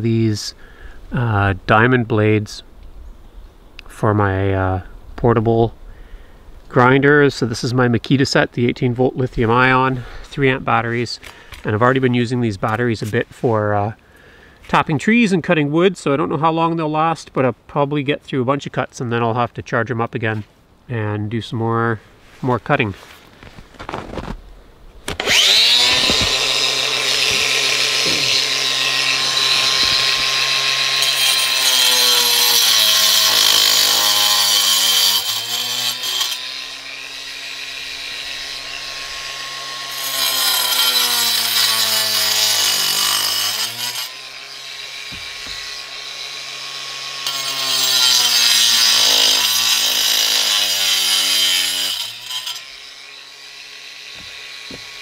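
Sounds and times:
angle grinder cutting brick: 25.1 - 55.0.

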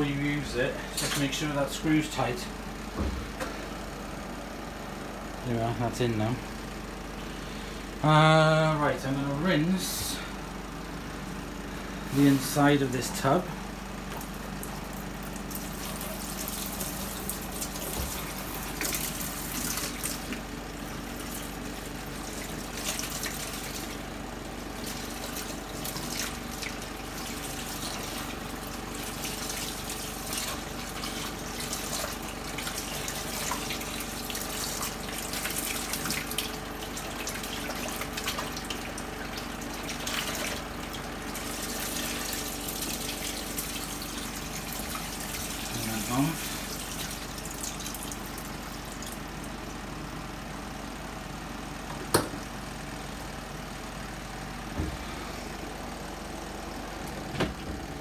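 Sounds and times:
hose water running into plastic tub: 14.1 - 49.3.

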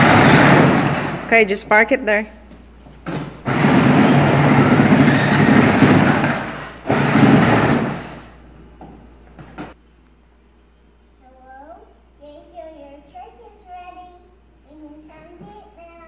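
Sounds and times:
plastic wheels rumbling on concrete: 0.0 - 1.4, 3.0 - 8.4
electric motor whirring: 3.4 - 7.6.

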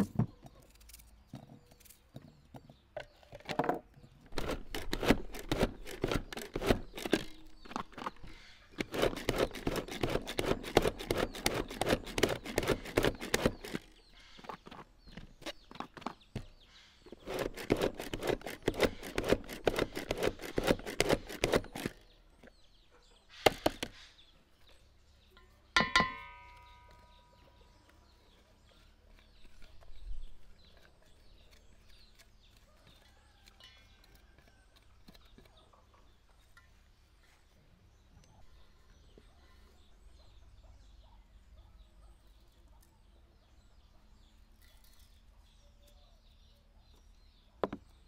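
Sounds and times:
pull-cord food chopper clattering: 4.3 - 8.2, 8.8 - 14.0, 17.1 - 22.0
clank on enamel basin: 25.8 - 26.6.

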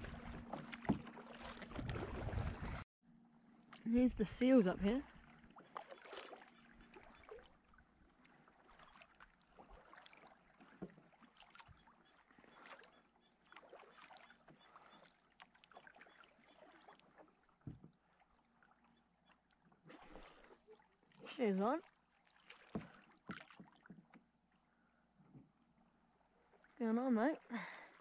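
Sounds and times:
water splashing and lapping: 0.0 - 2.9, 3.5 - 28.0
soft knocks on kayak: 17.6 - 18.0.

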